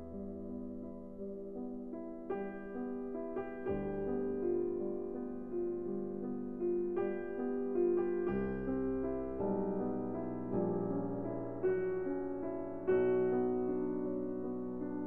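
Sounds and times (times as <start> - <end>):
slow gentle piano chords: 0.0 - 15.0.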